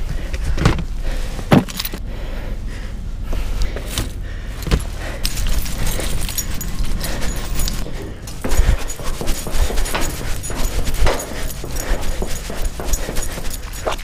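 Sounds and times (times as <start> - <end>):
keys and metal clips jingling: 1.7 - 2.0, 4.6 - 14.0
dull thumps: 4.6 - 14.0.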